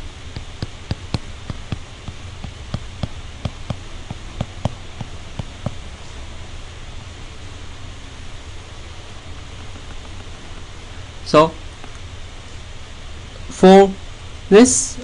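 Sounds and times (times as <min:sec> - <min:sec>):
stylus tapping on tablet screen: 0:00.0 - 0:05.9
low hum: 0:00.0 - 0:14.3.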